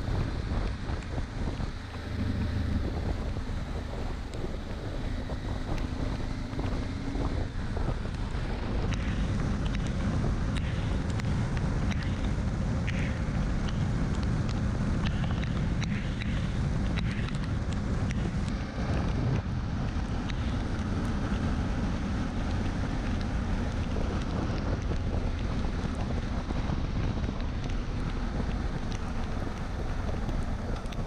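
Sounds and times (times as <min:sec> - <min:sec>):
motorcycle engine running: 0:00.0 - 0:31.0
wind rushing over microphone: 0:00.0 - 0:31.0
faint ticks: 0:08.9 - 0:19.1.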